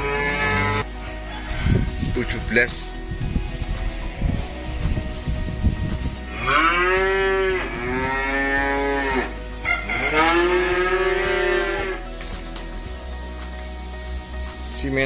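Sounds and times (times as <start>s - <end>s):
calf mooing: 0.0s - 0.9s, 6.3s - 12.0s.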